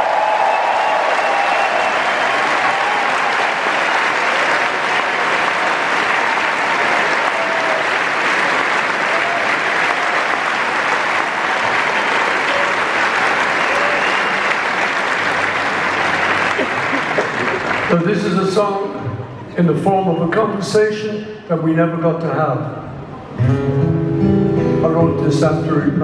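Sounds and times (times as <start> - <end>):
crowd applauding: 0.0 - 18.9.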